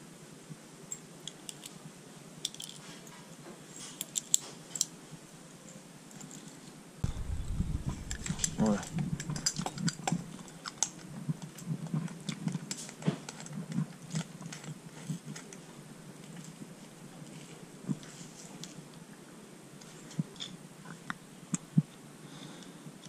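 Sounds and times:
carburettor parts clicking and knocking: 0:07.0 - 0:11.6.

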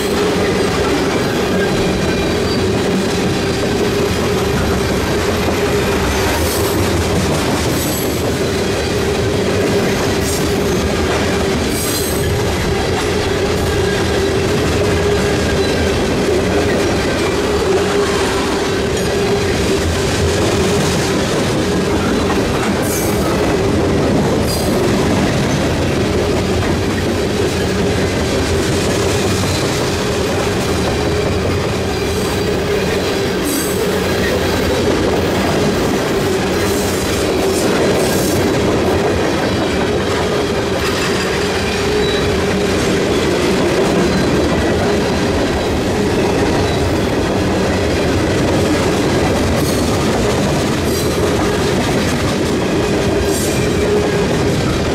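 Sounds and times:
crossing bell ringing: 0:00.0 - 0:06.4, 0:39.8 - 0:47.2
wheel squeals and clanks: 0:00.0 - 0:06.9, 0:11.7 - 0:19.6, 0:30.6 - 0:34.8, 0:39.4 - 0:44.7, 0:45.5 - 0:47.2
freight train wheels clattering: 0:00.0 - 0:54.9.

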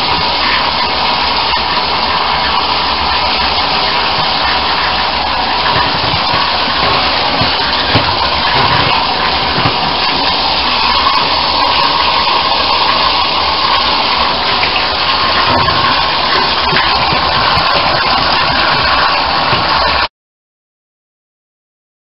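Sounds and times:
bathtub tap running: 0:00.0 - 0:20.1
water splashing into shallow water: 0:03.2 - 0:20.1.

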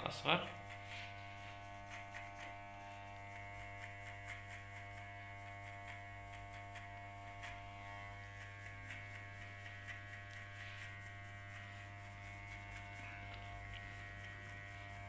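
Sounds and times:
electric hair clipper buzzing: 0:00.0 - 0:15.0
faint ticks: 0:09.9 - 0:10.6.

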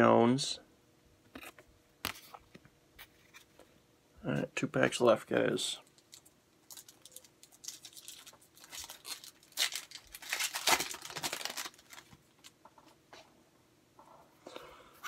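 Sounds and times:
foil wrapper tearing and crinkling: 0:06.0 - 0:12.6.

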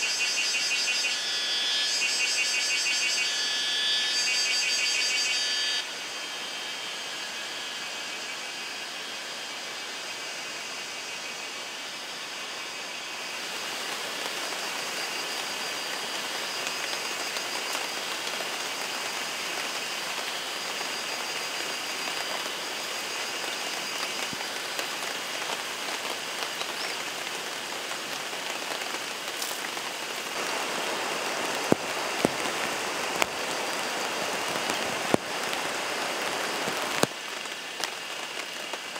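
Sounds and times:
heavy rain falling: 0:12.4 - 0:38.9.

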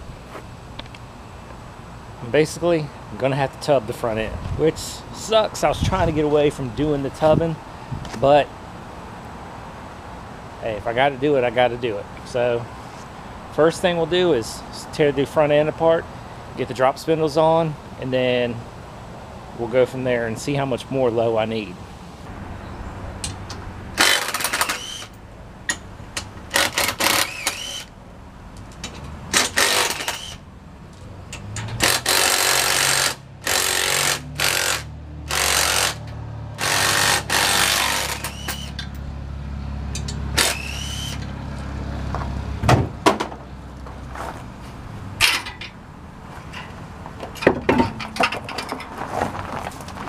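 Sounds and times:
impact wrench hammering: 0:24.0 - 0:25.1, 0:26.4 - 0:27.9, 0:29.3 - 0:30.4, 0:31.4 - 0:39.0.

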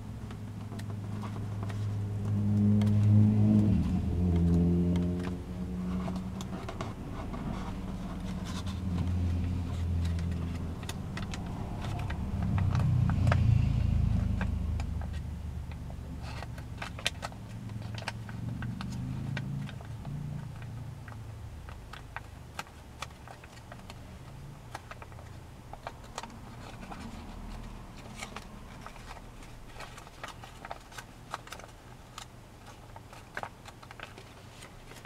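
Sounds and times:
low droning hum: 0:00.0 - 0:22.0
paper crinkling and folding: 0:00.1 - 0:35.0.

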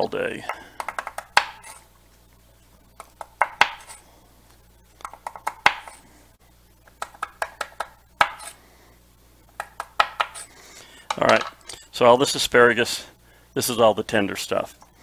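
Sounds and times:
knife chopping on wooden board: 0:00.8 - 0:01.8, 0:03.1 - 0:03.9, 0:05.0 - 0:06.0, 0:07.0 - 0:08.5, 0:09.6 - 0:10.4.

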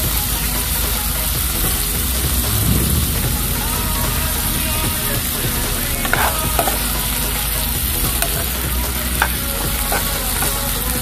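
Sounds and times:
chicken sizzling in a pan: 0:03.5 - 0:11.0
spatula scraping a pan: 0:05.9 - 0:11.0.

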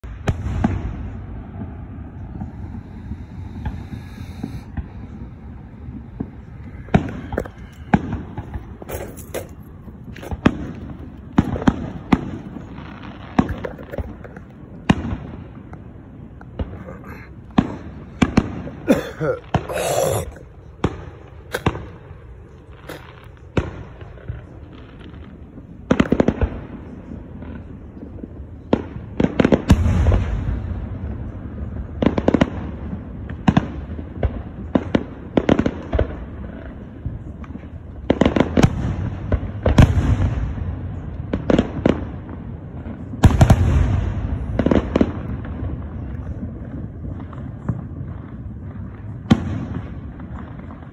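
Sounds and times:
fireworks bangs and pops: 0:00.0 - 0:50.9
low rolling rumble: 0:00.3 - 0:16.8.

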